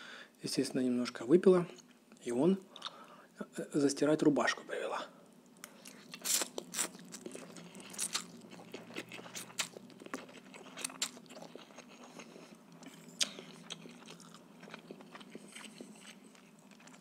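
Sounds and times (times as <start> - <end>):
man slurping and chewing noodles: 5.8 - 17.0.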